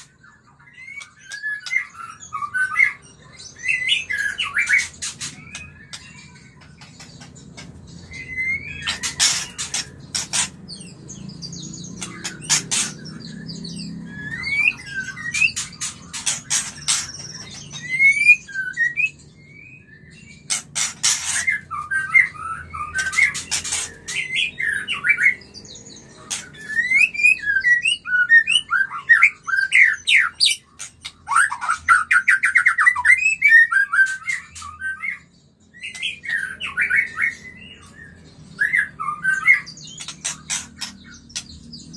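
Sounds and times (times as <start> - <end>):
bird whistling song: 0.0 - 41.9
harsh bird calls: 0.0 - 41.9.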